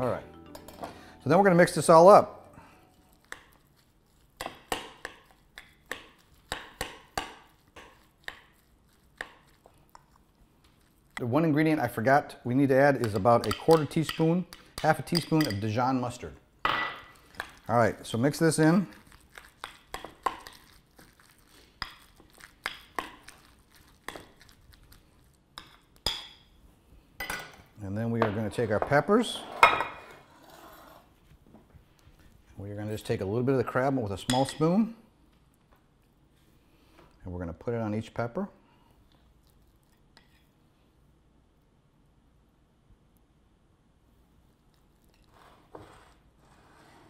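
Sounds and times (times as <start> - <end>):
spoon stirring in ceramic bowl: 2.8 - 11.2, 18.3 - 26.4
utensil clinking in ceramic bowl: 14.9 - 15.7.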